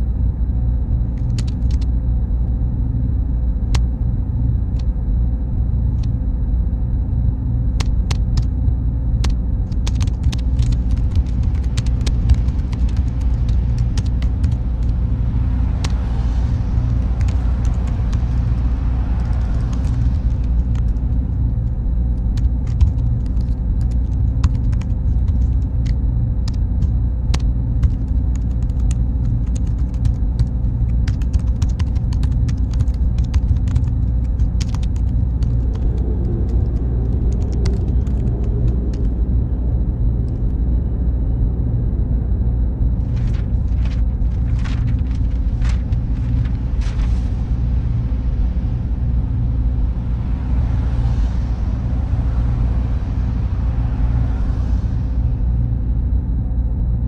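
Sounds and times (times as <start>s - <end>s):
faint high whine: 0.0s - 57.0s
server room drone: 0.0s - 57.0s
vehicle passing: 49.8s - 55.6s.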